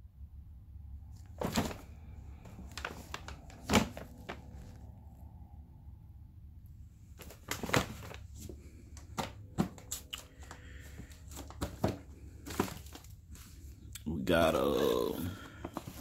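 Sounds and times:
packaging crinkling and rustling: 1.2 - 4.8, 7.2 - 13.8, 15.3 - 16.0
cardboard boxes knocking: 9.1 - 9.8, 11.4 - 13.0.

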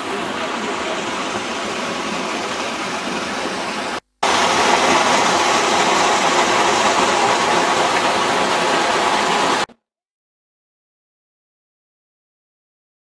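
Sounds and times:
waterfall splashing into pool: 0.0 - 9.8.

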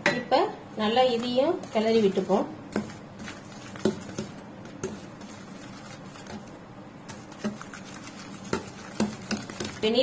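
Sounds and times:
spoon scraping bowl: 1.1 - 6.5, 7.1 - 10.0.

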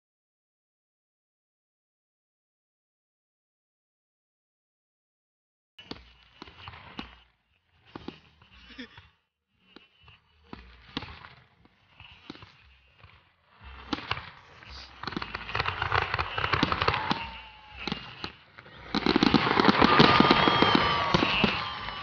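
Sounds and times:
firework shells bursting: 5.8 - 8.8, 9.7 - 22.0
crackling firework reports: 5.8 - 22.0.

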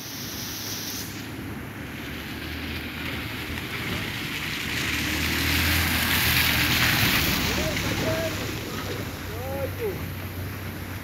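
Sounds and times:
tyres hissing through water: 0.0 - 3.5
low engine rumble: 1.3 - 11.0.

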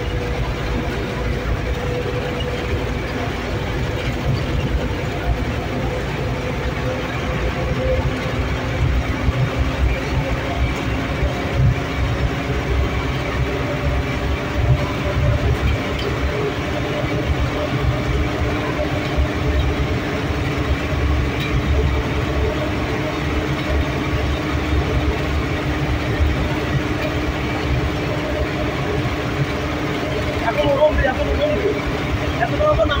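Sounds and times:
engine and road rumble in cab: 0.0 - 33.0.

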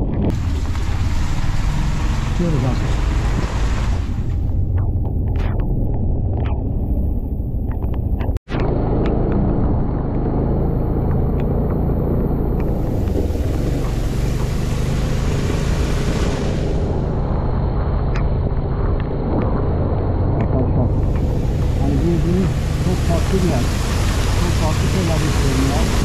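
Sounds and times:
wind and road noise rumble: 0.0 - 26.0
high hiss: 21.5 - 26.0.

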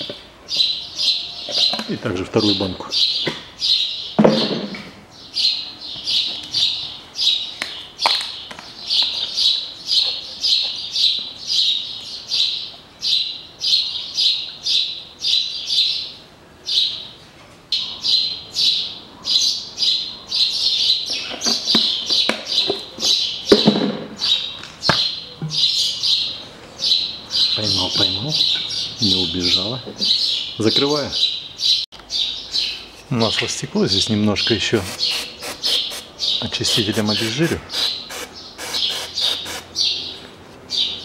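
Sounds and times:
small bird chirping: 34.5 - 41.0.

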